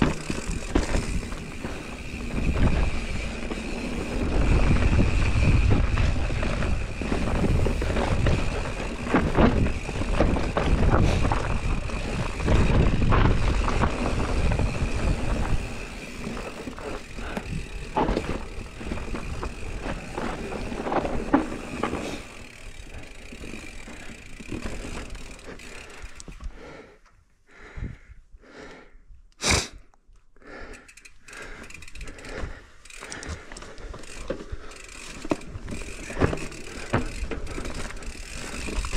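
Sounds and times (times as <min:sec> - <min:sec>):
wind rumbling on microphone: 0:00.0 - 0:21.3
bike tyres on dirt and roots: 0:00.0 - 0:27.8, 0:30.4 - 0:38.9.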